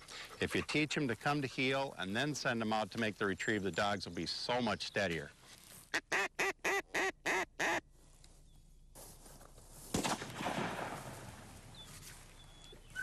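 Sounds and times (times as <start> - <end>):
rustling: 5.0 - 6.0
sharp crack: 9.9 - 11.6.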